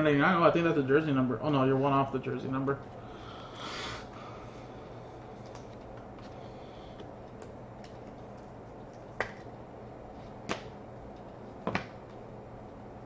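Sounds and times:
faint steady hum: 0.0s - 13.0s
trading cards snapping: 10.5s - 10.8s.

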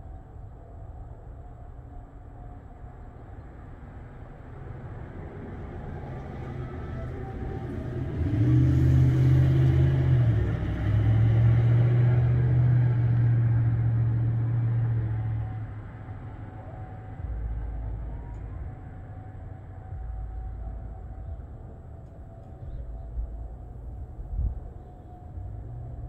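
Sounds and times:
vehicle passing: 4.6s - 20.2s.

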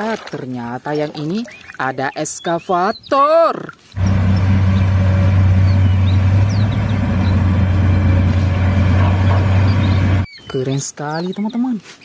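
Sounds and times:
heavy machine engine drone: 4.0s - 10.3s.

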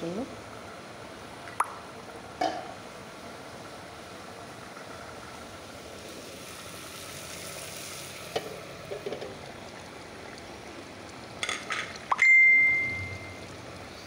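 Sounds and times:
food hissing in pot: 5.8s - 8.9s.

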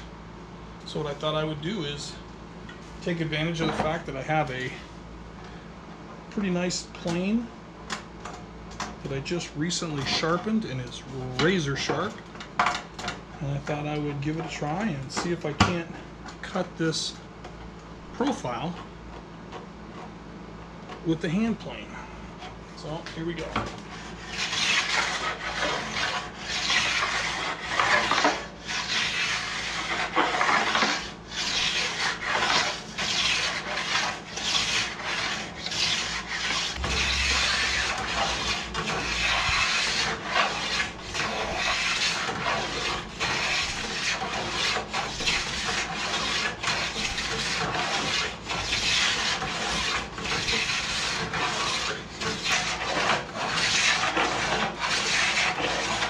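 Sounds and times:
hand plane shaving wood: 23.9s - 56.0s.

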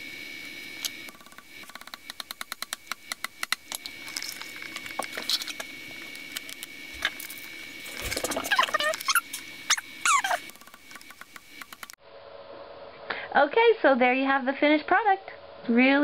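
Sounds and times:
short squeaky sweeping sounds: 8.5s - 10.4s.

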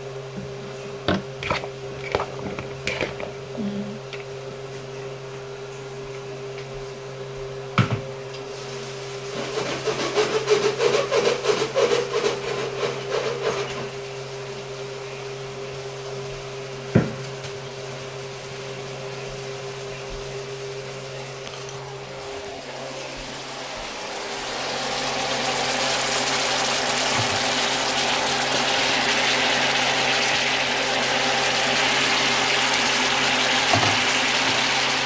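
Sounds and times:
steady low hum: 0.0s - 9.0s, 13.7s - 26.2s.

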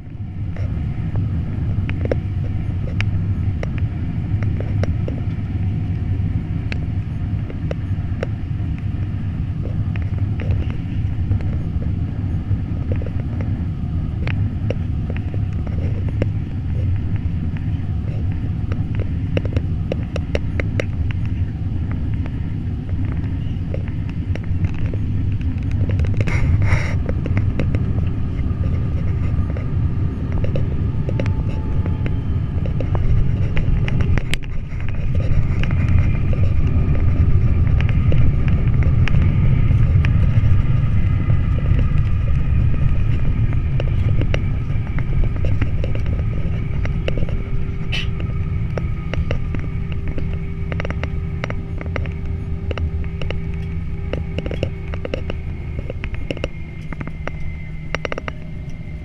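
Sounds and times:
faint steady whine: 0.0s - 59.0s
jet engine and airflow rumble: 0.0s - 59.0s.

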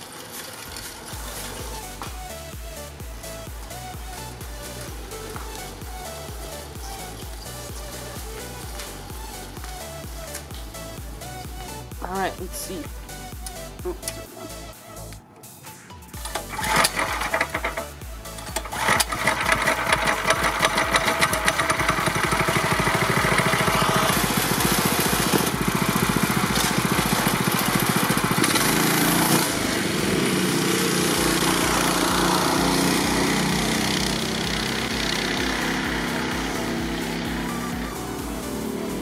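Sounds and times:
small engine running: 0.0s - 14.7s, 16.2s - 39.0s
engine spluttering: 16.2s - 39.0s.

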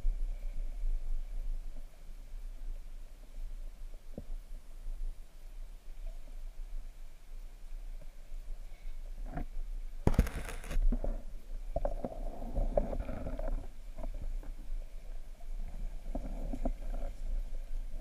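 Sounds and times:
crackling burst: 10.1s - 10.8s.

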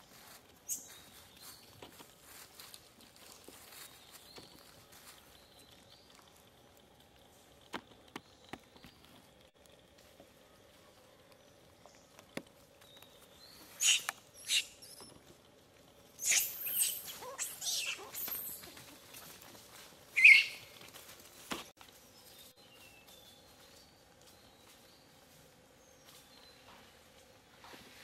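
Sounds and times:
monkeys squealing: 13.8s - 14.9s, 16.2s - 18.9s, 20.2s - 20.7s.

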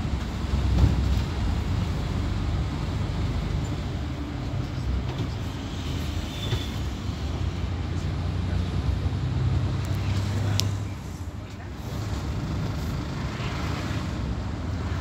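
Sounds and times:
bus engine rumble: 0.0s - 15.0s.

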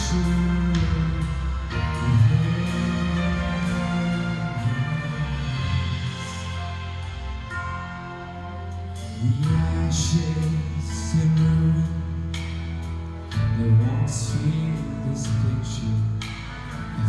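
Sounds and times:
man singing into microphone: 0.0s - 6.7s, 9.1s - 12.4s, 13.4s - 17.0s
instrumental accompaniment: 0.0s - 17.0s.

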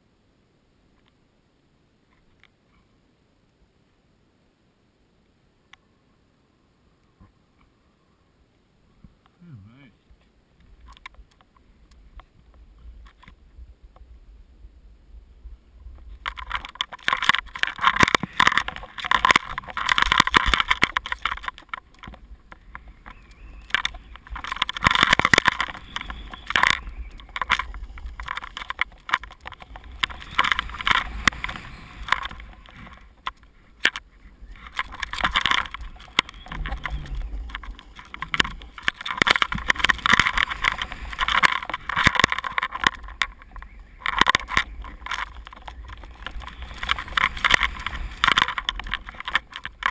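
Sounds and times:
wind rumbling on microphone: 10.0s - 49.9s.

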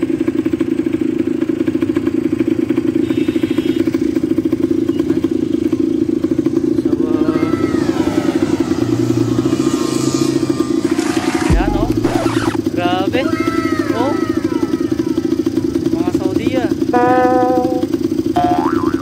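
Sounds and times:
quad bike engine running: 0.0s - 19.0s
faint rising and falling tones: 7.2s - 12.6s.

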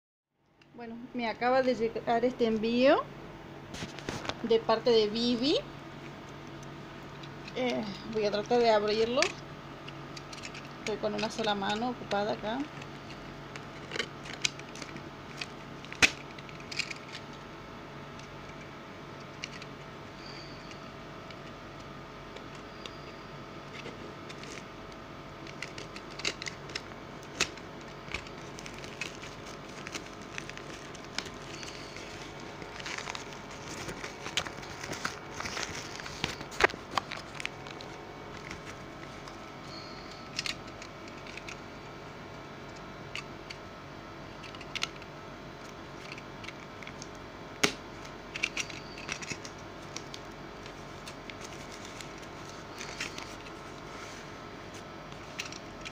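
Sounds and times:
steady low hum: 0.4s - 55.9s
sharp plastic snaps: 13.5s - 17.4s, 44.4s - 50.2s
plastic bag crinkling and tearing: 25.4s - 39.4s.

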